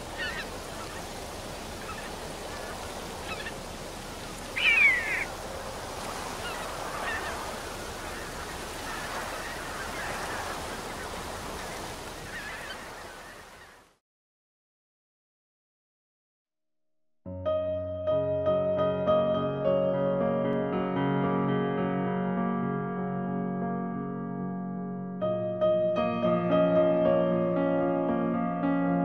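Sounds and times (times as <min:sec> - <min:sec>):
geese honking: 0:00.0 - 0:03.7, 0:04.4 - 0:05.3, 0:06.3 - 0:13.8.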